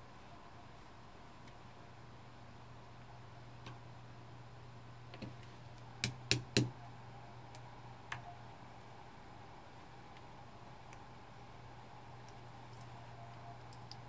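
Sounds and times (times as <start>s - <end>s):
hammer tapping pin punch: 6.0s - 6.8s.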